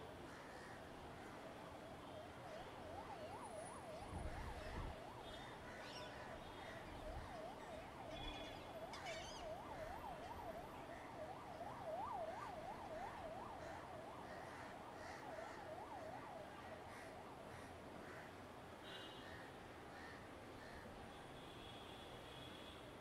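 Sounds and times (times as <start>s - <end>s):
faint siren yelping: 1.5s - 17.9s.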